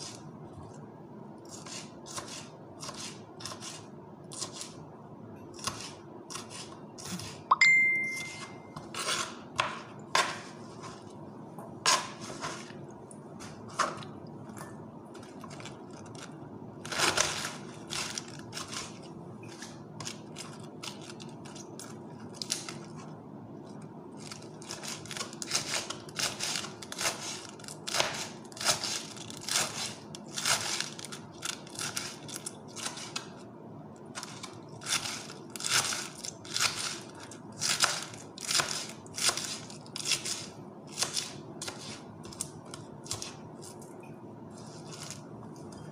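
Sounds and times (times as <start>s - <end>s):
ringing ding: 7.5s - 8.8s
knife chopping on cutting board: 8.9s - 10.6s
crunching cuts through lettuce: 15.2s - 23.0s, 24.2s - 33.3s, 34.1s - 43.9s, 44.5s - 45.8s.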